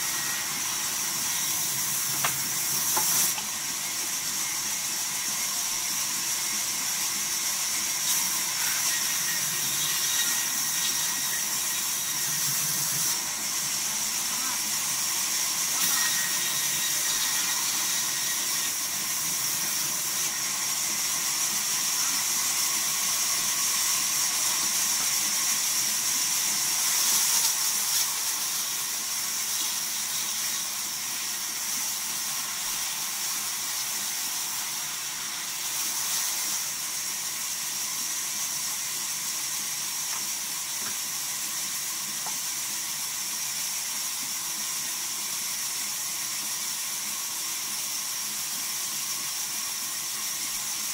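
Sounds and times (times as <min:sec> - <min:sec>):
band saw cutting log: 0:00.0 - 0:38.8.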